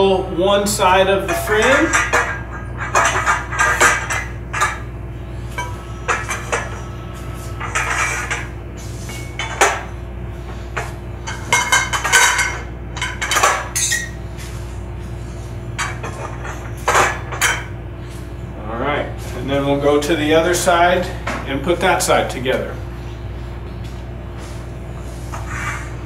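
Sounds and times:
metal pipes clinking and clanking: 1.1 - 4.9, 5.5 - 10.0, 10.7 - 14.2, 15.7 - 17.8.

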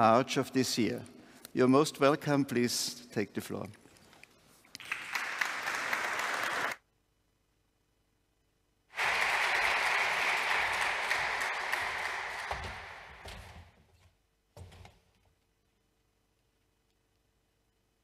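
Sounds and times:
audience applauding: 4.8 - 6.8, 9.0 - 13.6.

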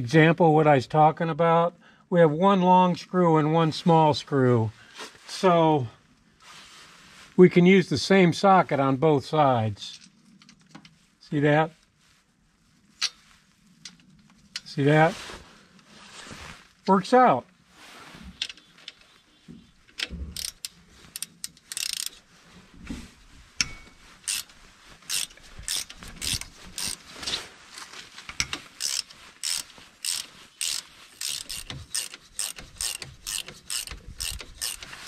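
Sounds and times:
ratchet wrench clicking: 20.4 - 22.2, 23.6 - 24.5, 25.1 - 27.0, 28.4 - 35.0.

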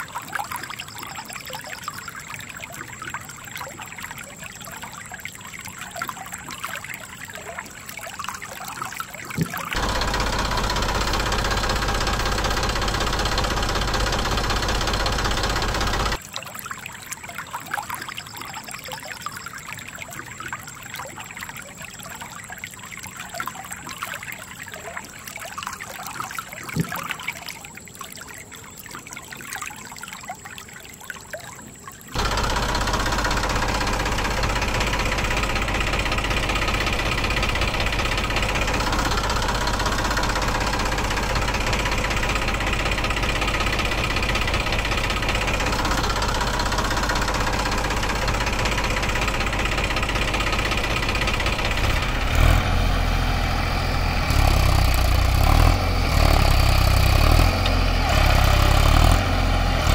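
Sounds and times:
stream water trickling: 0.0 - 59.9
loud steady motor noise: 9.8 - 16.2, 32.2 - 59.9.

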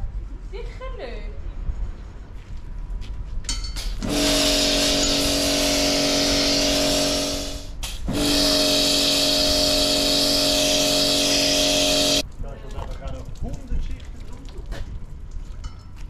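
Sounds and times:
pump motor humming: 4.0 - 12.2.

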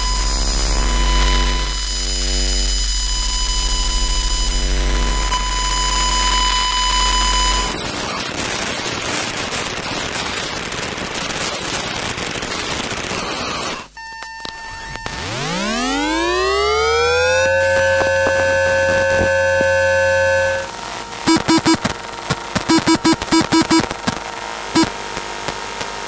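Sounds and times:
electronic beep: 0.0 - 7.8, 14.0 - 20.7, 21.3 - 21.8, 22.6 - 23.9
electrical buzzing hum with whine: 0.0 - 7.9, 13.5 - 26.0
crackling static with glitchy clicks: 0.0 - 26.0.

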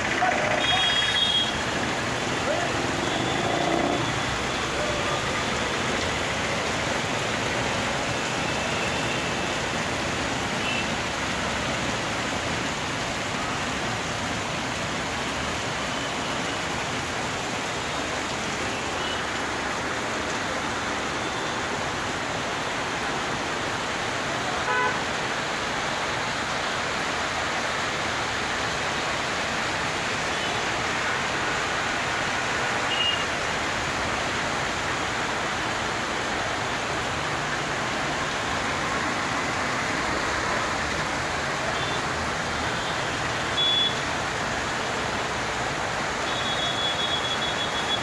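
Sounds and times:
heavy rain hissing: 0.0 - 48.0
traffic on wet road: 0.0 - 48.0
vehicle horn toot: 24.7 - 25.0.

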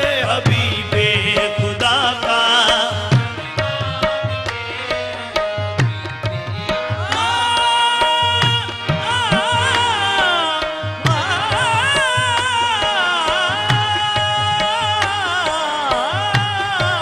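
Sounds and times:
harmonium: 0.0 - 17.0
tabla: 0.0 - 17.0
voices singing: 6.6 - 17.0.

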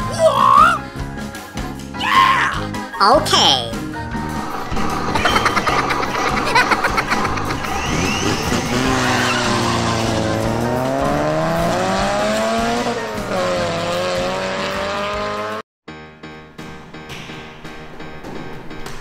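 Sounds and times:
background music: 0.0 - 19.0
toy engine revving effect: 5.1 - 10.6.

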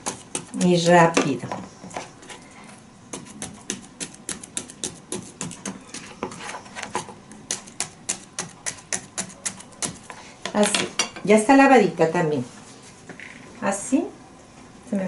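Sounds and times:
knife chopping on a plate: 0.0 - 2.0, 3.1 - 11.2.

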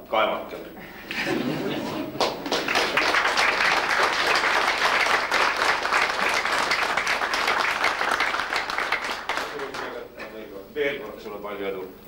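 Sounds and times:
people applauding: 2.0 - 10.2.

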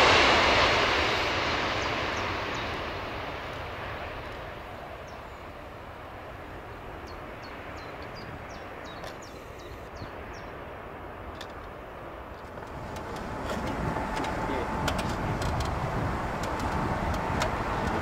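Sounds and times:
jet engines rumbling: 0.0 - 18.0
bird chirps: 7.0 - 10.5.

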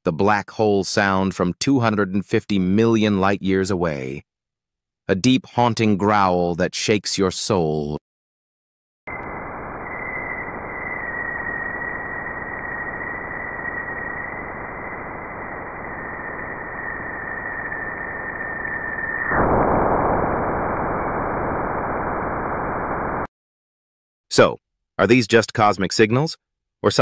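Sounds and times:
thin high whistle: 9.1 - 19.6
dense hissing drone: 9.1 - 22.5.

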